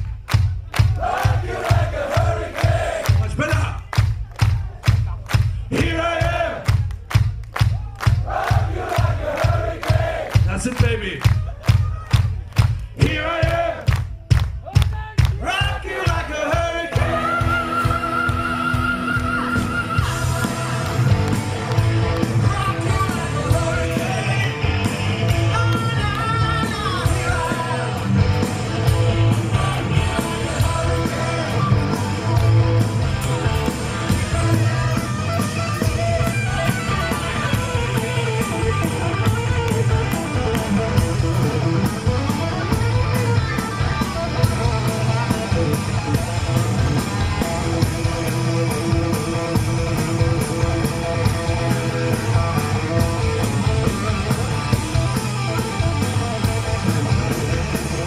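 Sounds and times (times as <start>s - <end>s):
bass guitar: 0.0s - 58.0s
drums: 0.0s - 58.0s
person singing: 15.5s - 21.2s, 22.3s - 28.1s
distorted electric guitars: 16.6s - 58.0s.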